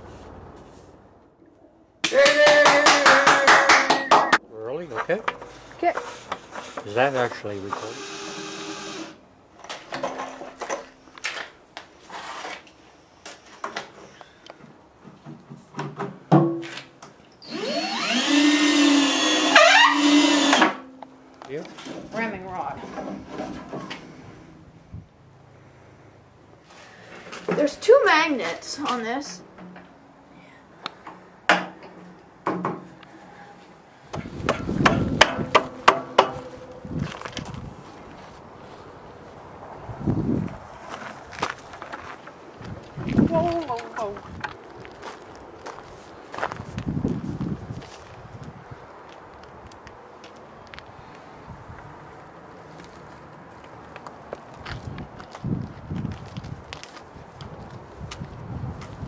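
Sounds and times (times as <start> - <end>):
knocks and clatter of wood and tools: 3.8 - 6.9, 9.6 - 11.6, 13.3 - 17.2, 22.8 - 24.0, 31.0 - 33.0, 34.1 - 37.6
cordless drill driving screws: 7.7 - 9.2, 17.4 - 20.8
sharp wooden knocks: 34.1 - 36.5.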